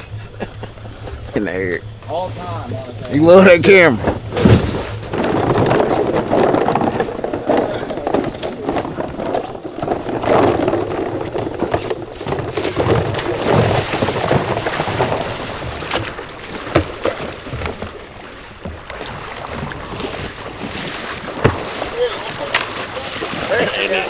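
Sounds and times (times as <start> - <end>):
water sloshing from wading steps: 0.0 - 24.0
sharp knocks: 3.7 - 8.9.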